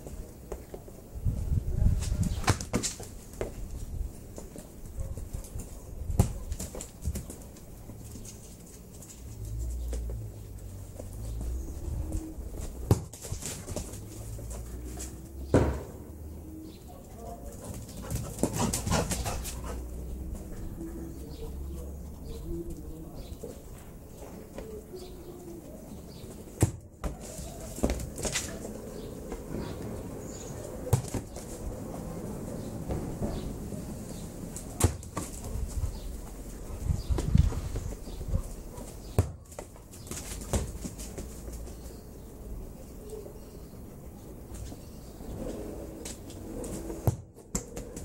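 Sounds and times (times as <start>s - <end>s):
ball bouncing on pavement: 0.0s - 1.1s, 2.0s - 16.2s, 17.7s - 20.8s, 26.2s - 31.9s, 32.8s - 33.6s, 34.6s - 36.4s, 37.0s - 42.0s, 46.0s - 48.0s
ball bouncing thumps: 6.1s - 7.4s, 12.5s - 14.0s, 15.5s - 16.0s, 26.5s - 27.2s, 39.1s - 41.4s, 46.9s - 48.0s
dog scuffling: 6.4s - 15.3s, 17.5s - 20.5s
ball kicked thud: 12.8s - 13.3s.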